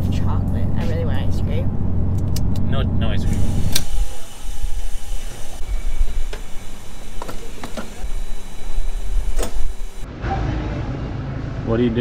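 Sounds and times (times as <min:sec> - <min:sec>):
fuel pump rumble: 0:00.0 - 0:10.0
store hum: 0:00.0 - 0:12.0
sharp clicks: 0:03.3 - 0:04.0.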